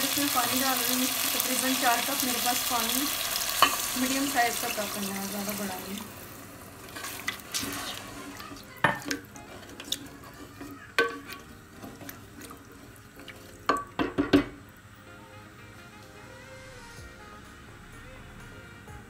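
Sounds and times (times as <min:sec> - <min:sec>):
spoon stirring curry in pot: 0:06.9 - 0:13.6
spoon knocking against pot: 0:11.0 - 0:11.4, 0:13.7 - 0:14.6.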